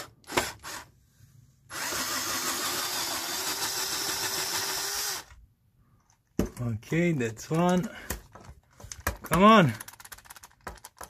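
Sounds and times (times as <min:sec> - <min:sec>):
power wrench whining: 0:01.7 - 0:05.4.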